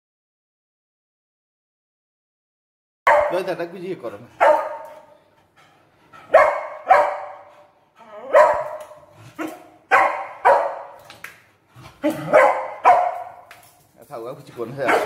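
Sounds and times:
dog barking: 3.1 - 3.5, 4.4 - 5.1, 6.3 - 7.6, 8.3 - 11.0, 12.0 - 13.5, 14.8 - 15.0.

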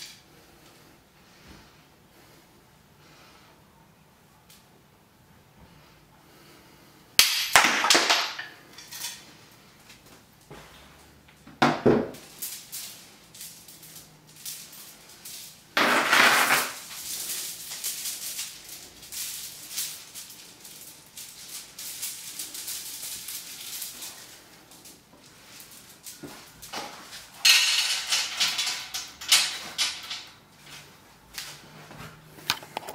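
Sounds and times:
metal chain rattling and clinking: 12.2 - 30.4.

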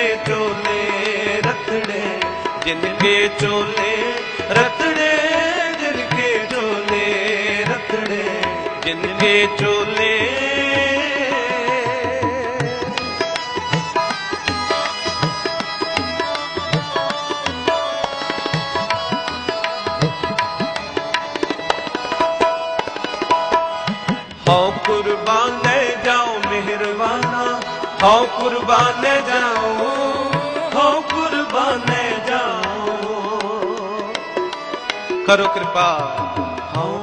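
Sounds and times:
harmonium melody: 0.0 - 37.0
tabla strokes: 0.0 - 37.0
person singing: 24.4 - 37.0.

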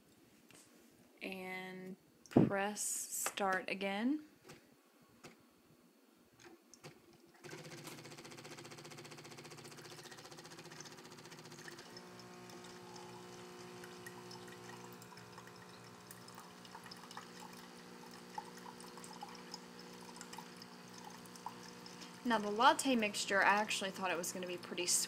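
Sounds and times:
coffee machine pump humming: 7.4 - 25.0.

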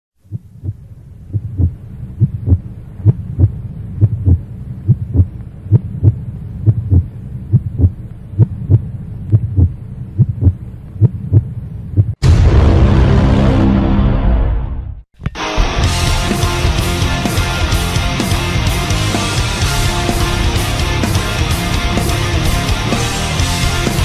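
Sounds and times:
heartbeat thumps: 0.2 - 12.2, 16.0 - 24.0
steady low hum: 0.2 - 13.9, 15.8 - 24.0
loud rock music: 12.2 - 24.0.

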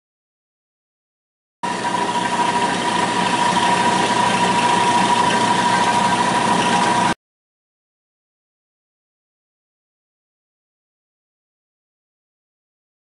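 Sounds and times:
milling machine whine: 1.6 - 7.2.

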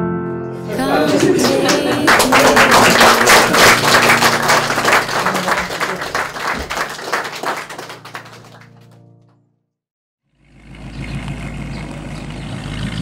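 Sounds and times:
crowd applauding: 0.6 - 9.0.

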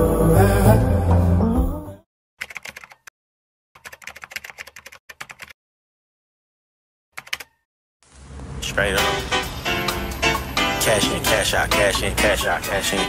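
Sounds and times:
keyboard key clicks: 2.4 - 3.1, 7.2 - 7.6.

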